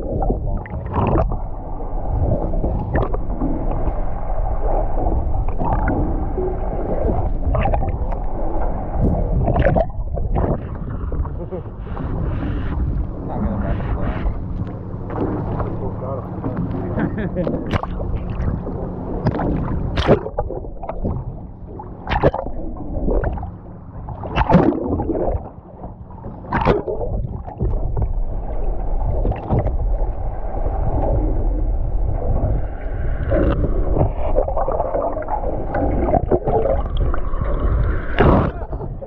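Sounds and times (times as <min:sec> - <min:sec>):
low boat hum: 0:00.0 - 0:39.0
underwater gurgling and sloshing: 0:00.0 - 0:39.0
water splash: 0:06.9 - 0:11.3, 0:15.0 - 0:25.6, 0:26.3 - 0:30.0, 0:32.2 - 0:38.8.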